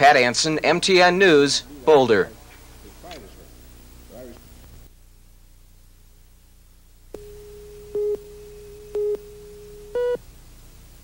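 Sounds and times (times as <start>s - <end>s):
steady low tone: 7.1s - 10.2s
short beeps: 7.2s - 10.2s.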